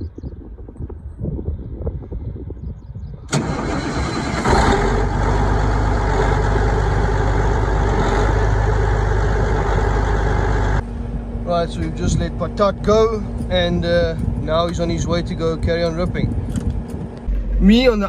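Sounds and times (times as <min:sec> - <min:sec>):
diesel tractor engine starting: 0:03.2 - 0:10.8.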